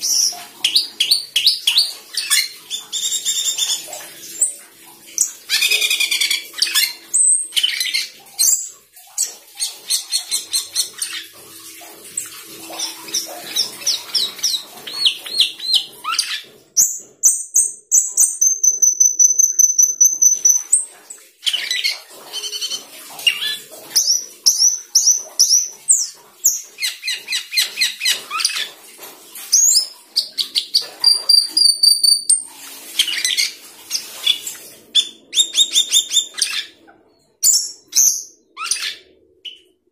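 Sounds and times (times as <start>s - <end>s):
starling singing chirps and whistles: 12.8s - 20.8s, 23.3s - 28.7s, 29.6s - 32.4s, 37.4s - 39.6s.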